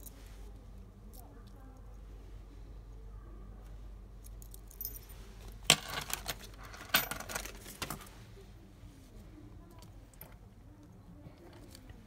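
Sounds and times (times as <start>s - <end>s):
metal keys jingling: 4.2s - 8.0s.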